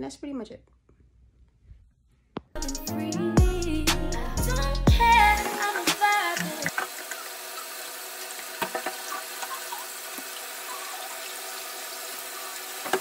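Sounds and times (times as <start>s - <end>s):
water running from tap: 5.4s - 13.0s.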